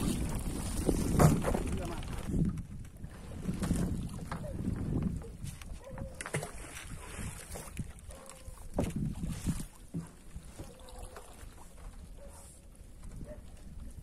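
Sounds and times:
low wind rumble: 0.0s - 6.1s
water lapping around a canoe: 0.0s - 14.0s.

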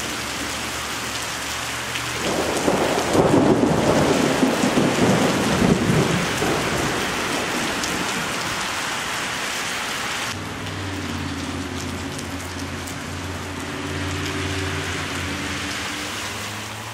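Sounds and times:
heavy rain pouring: 0.0s - 16.9s
low thunder rumble: 2.2s - 8.7s
car engine hum: 10.3s - 16.9s.

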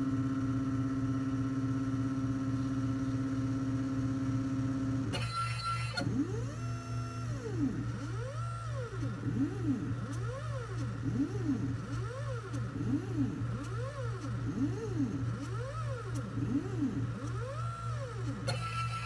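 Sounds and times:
steady low hum: 0.0s - 19.0s
stepper motors whining: 5.0s - 19.0s.

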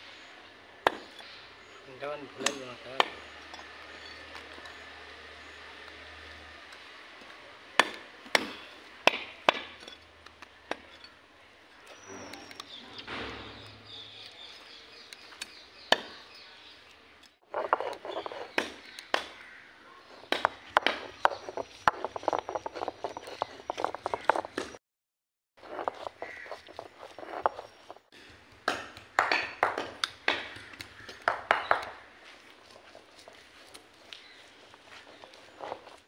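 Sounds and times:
stone roller grinding on stone: 0.9s - 11.2s, 17.4s - 19.3s, 20.0s - 24.8s, 25.6s - 36.0s
knife chopping on wooden block: 7.8s - 9.9s, 20.3s - 24.8s.

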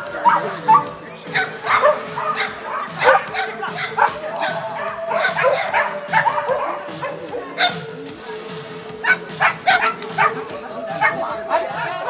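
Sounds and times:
dog barking: 0.2s - 7.9s, 9.0s - 11.3s.

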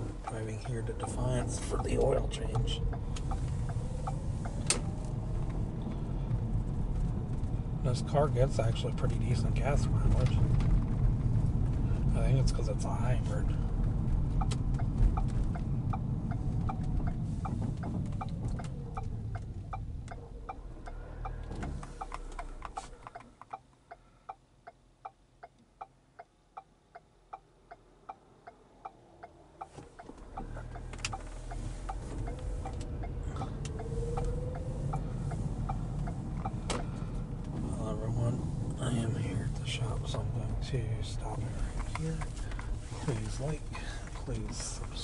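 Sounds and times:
road and tyre noise: 0.0s - 45.0s
turn signal ticking: 0.0s - 45.0s.

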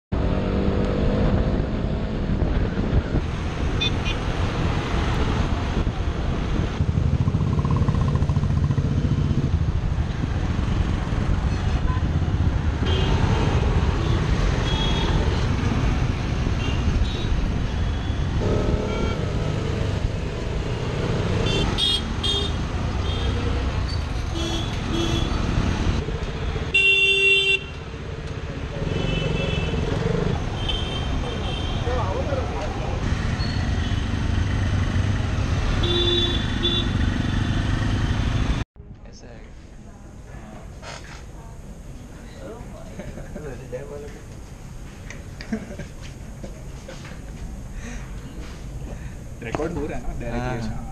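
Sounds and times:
motorcycle engine accelerating: 6.3s - 11.4s, 18.4s - 22.2s
vehicle horns honking: 12.8s - 13.2s, 14.0s - 15.2s, 16.6s - 19.4s, 21.4s - 23.4s, 24.3s - 25.4s, 26.7s - 27.7s, 28.8s - 29.8s, 35.8s - 37.5s.

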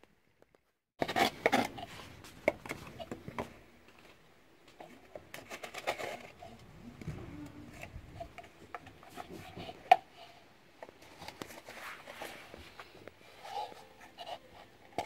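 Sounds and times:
knife scraping gourd shell: 1.0s - 3.2s, 5.3s - 6.6s.

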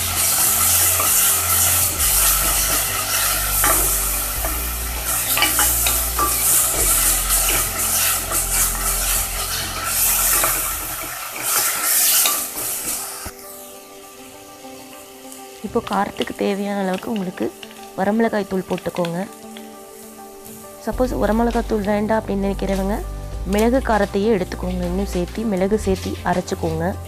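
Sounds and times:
wooden spoon scraping a pan: 0.0s - 13.3s
spice paste sizzling in oil: 0.0s - 27.0s.

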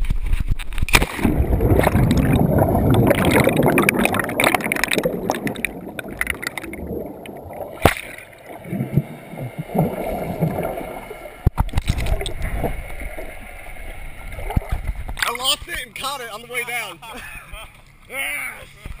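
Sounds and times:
splash into water: 0.9s - 12.8s
underwater bubbling: 0.9s - 15.2s.

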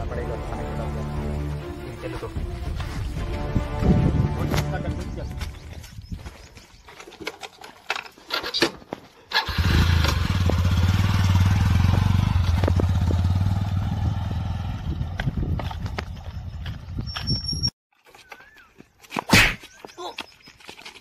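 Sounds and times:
motorcycle engine running: 9.4s - 17.0s.

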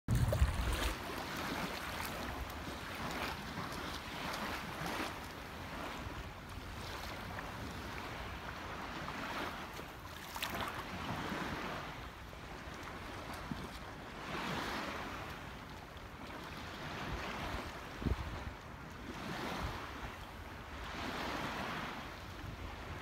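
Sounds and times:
wind buffeting microphone: 0.1s - 9.5s, 16.6s - 23.0s
small waves lapping: 0.1s - 23.0s.

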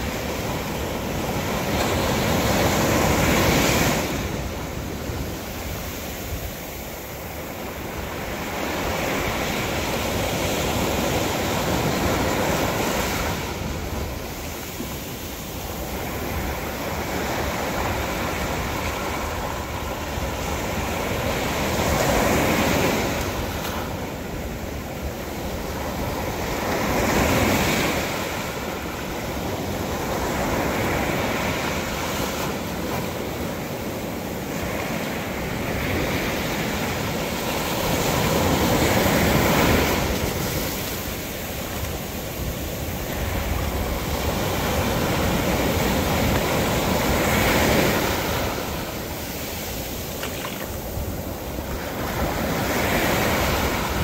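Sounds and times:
ocean surf breaking on beach: 0.0s - 54.0s.

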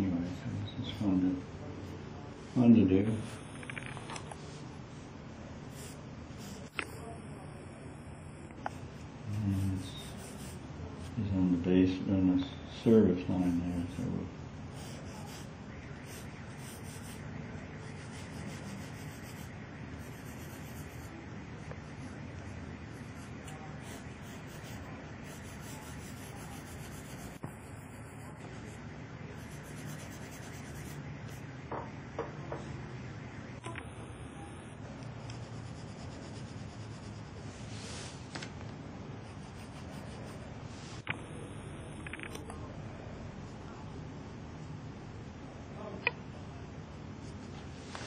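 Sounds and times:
pencil scratching on paper: 5.7s - 7.0s, 9.2s - 11.2s, 13.3s - 14.1s, 14.7s - 28.8s, 29.4s - 31.0s, 35.2s - 37.5s, 39.2s - 40.4s.

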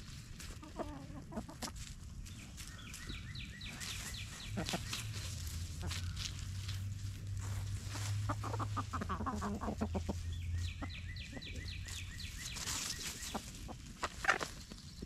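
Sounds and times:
low steady hum: 0.0s - 14.9s
chickens clucking: 0.0s - 15.0s
scratching in dry leaves: 0.0s - 15.0s.

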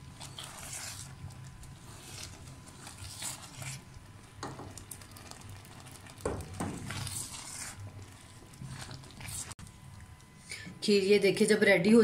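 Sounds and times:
spatula scraping pudding in pan: 0.0s - 9.6s.

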